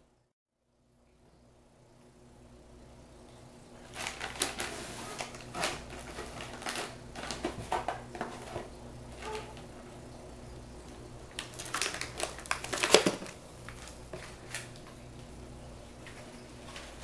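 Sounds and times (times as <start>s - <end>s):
plastic packaging crinkling: 3.8s - 9.6s, 11.3s - 15.0s.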